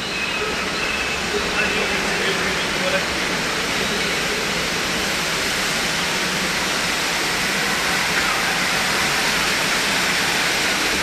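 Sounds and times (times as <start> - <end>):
waterfall rushing: 0.6 - 11.0.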